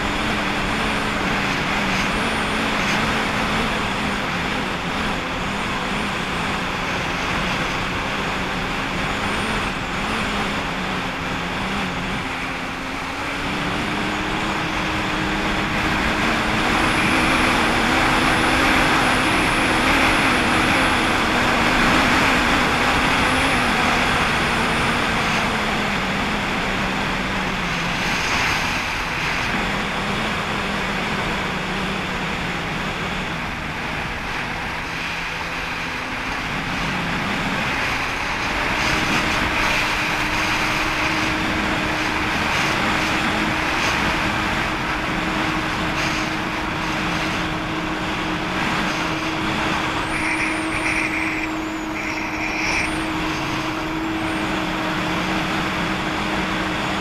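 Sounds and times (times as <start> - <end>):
hiss of water and wind: 0.0 - 57.0
jet ski engine running: 0.0 - 57.0.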